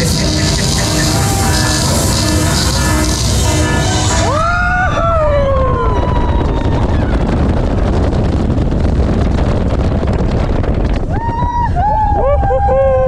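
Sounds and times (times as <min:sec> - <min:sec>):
loud steady rushing noise: 0:00.0 - 0:10.7
person whooping: 0:11.1 - 0:13.0.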